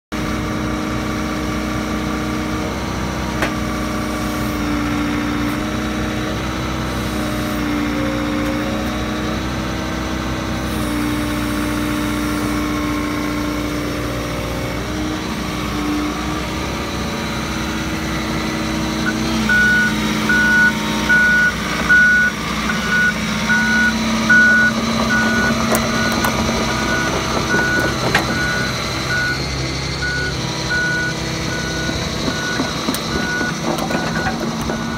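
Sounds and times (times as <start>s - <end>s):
excavator diesel engine running: 0.2s - 34.9s
backup alarm beeping: 19.0s - 29.4s, 30.0s - 34.9s.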